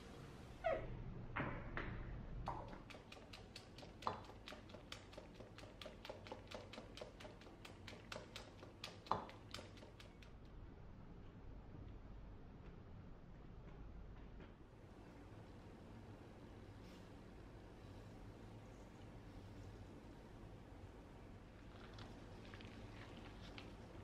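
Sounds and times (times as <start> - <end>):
whisk beating in metal bowl: 2.7 - 10.2.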